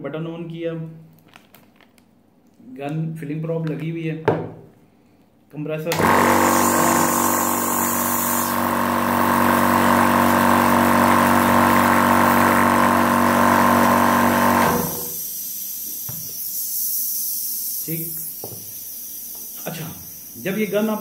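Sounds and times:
air compressor humming: 5.9s - 21.0s.

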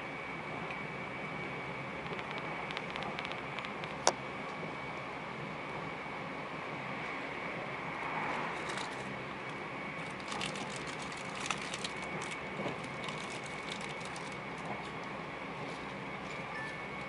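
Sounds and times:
electric train running: 0.0s - 17.0s
sharp clicks and clatter: 2.0s - 4.1s.

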